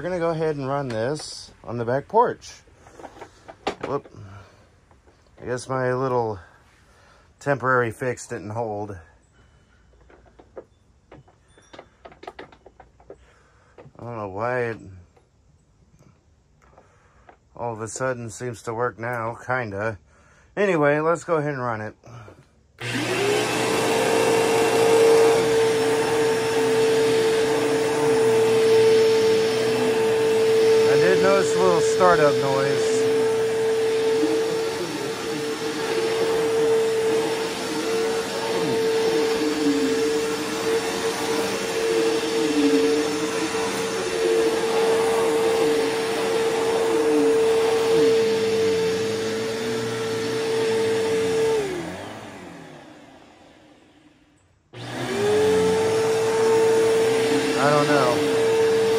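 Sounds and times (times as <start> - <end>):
vacuum cleaner motor whine: 22.8 - 58.9.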